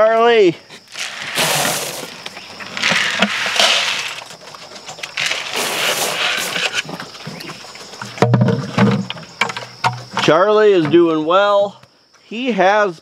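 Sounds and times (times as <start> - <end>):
feed pouring into wooden trough: 1.0 - 2.1.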